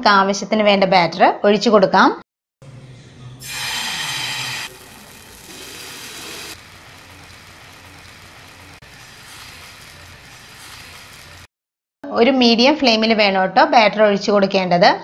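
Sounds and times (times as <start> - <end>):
batter sizzling on hot pan: 3.4 - 11.5.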